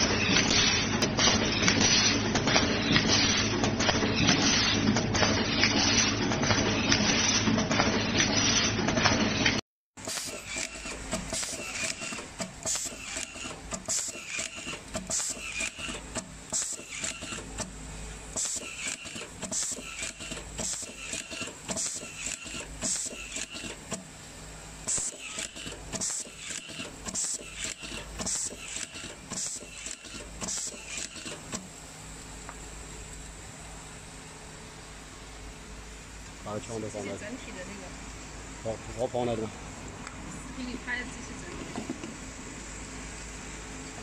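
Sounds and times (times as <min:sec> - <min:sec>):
cable-tie gun clicks and whirs: 0:00.0 - 0:24.1, 0:24.8 - 0:31.7
machine feeder humming: 0:09.3 - 0:44.0.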